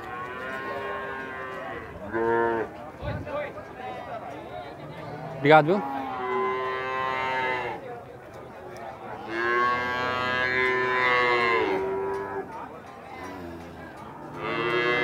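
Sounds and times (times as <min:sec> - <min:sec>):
cattle mooing: 0:00.0 - 0:02.7, 0:04.8 - 0:07.8, 0:09.2 - 0:12.5, 0:13.2 - 0:15.0.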